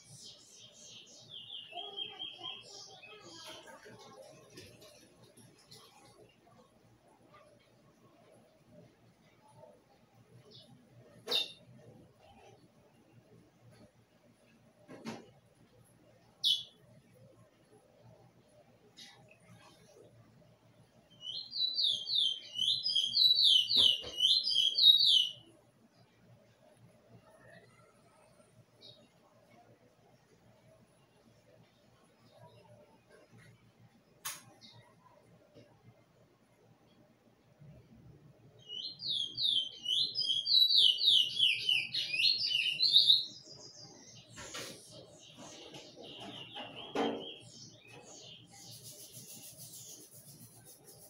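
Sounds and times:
bird chirps and calls: 0.0 - 3.6, 16.4 - 16.8, 21.2 - 25.5, 38.6 - 51.0
bird whistling song: 21.2 - 25.4, 38.6 - 43.8.

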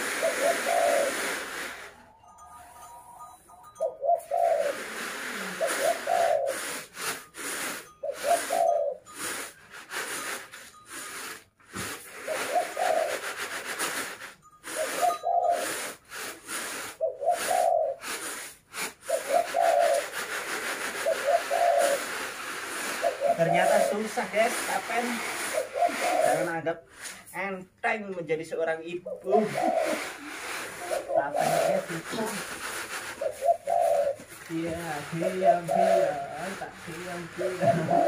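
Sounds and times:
rice rustling in winnowing trays: 0.0 - 3.2, 4.4 - 27.2, 29.2 - 38.0
dove cooing: 0.0 - 6.9, 8.0 - 9.3, 12.1 - 13.7, 14.7 - 16.0, 16.6 - 18.4, 19.0 - 24.2, 25.0 - 26.6, 29.0 - 38.0.

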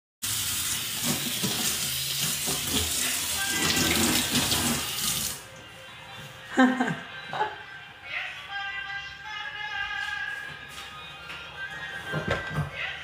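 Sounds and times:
tap water running into sink: 0.2 - 5.4.

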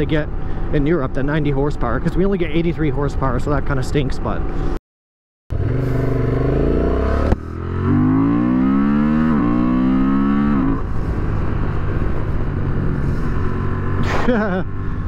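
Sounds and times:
motorcycle engine accelerating: 5.5 - 15.0.

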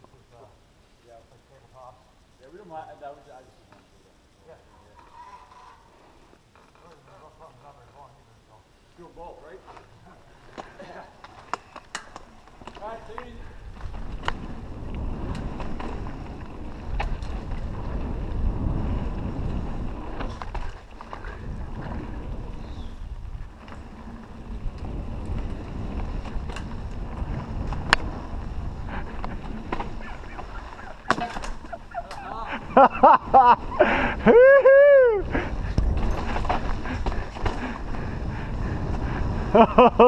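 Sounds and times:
bike tyres rumbling on dirt: 9.0 - 40.0
bike clicks and knocks: 9.7 - 18.4, 20.0 - 32.3, 35.6 - 38.0
wind buffeting microphone: 13.0 - 40.0.

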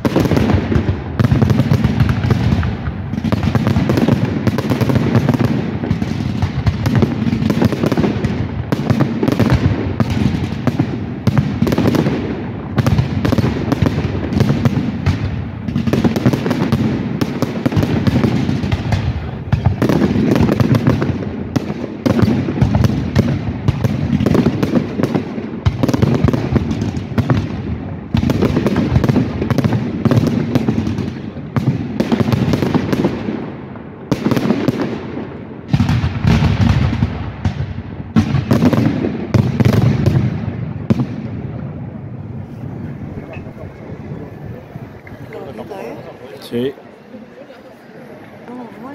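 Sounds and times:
fireworks crackle: 0.0 - 48.9.

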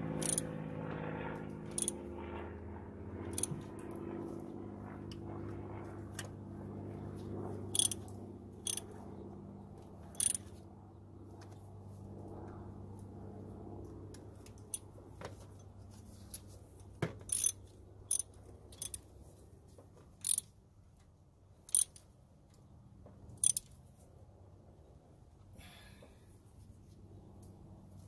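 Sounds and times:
socket ratchet clicking: 0.2 - 0.4, 1.7 - 2.0, 7.7 - 8.0, 8.6 - 8.9, 10.2 - 10.5, 17.3 - 19.0, 20.2 - 20.5, 21.7 - 22.0, 23.4 - 23.7.

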